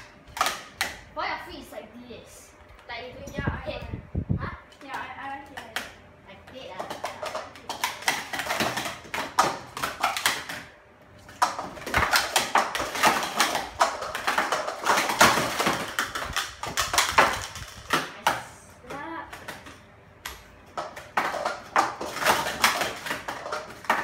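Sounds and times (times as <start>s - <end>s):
plastic cups clattering: 6.5s - 24.0s.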